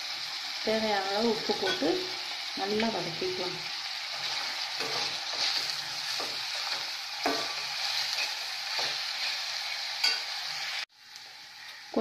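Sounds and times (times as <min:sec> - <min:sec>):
vegetables sizzling in oil: 0:00.0 - 0:12.0
spatula scraping metal pan: 0:04.1 - 0:09.4.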